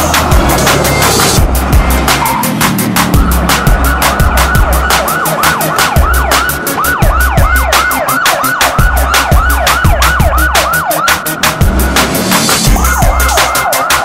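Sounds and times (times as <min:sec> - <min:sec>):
heavy bass: 0:00.0 - 0:14.0
music with ticking beat: 0:00.0 - 0:14.0
siren in falling sweeps: 0:02.1 - 0:11.6, 0:12.6 - 0:14.0.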